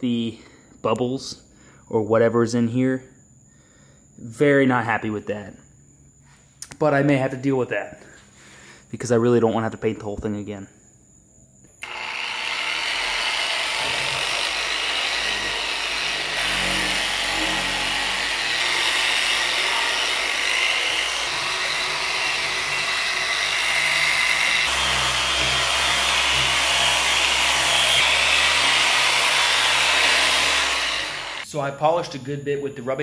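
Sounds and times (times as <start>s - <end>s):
electric polisher running: 11.8s - 31.4s.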